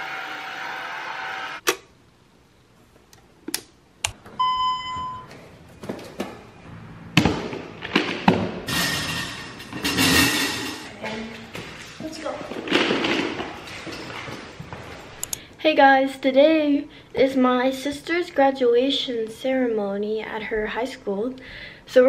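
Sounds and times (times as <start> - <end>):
short electronic beep: 4.4 - 5.3
thuds: 7.1 - 10.4.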